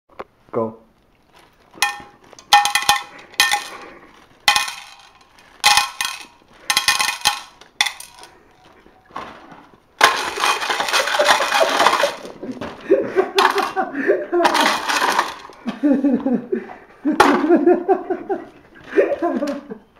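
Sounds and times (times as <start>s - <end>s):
hard pieces clattering into metal pot: 1.8s - 8.3s, 10.0s - 12.6s, 13.4s - 13.8s, 14.4s - 15.6s
contents stirred clattering: 1.8s - 8.4s, 10.0s - 12.7s, 13.3s - 15.7s.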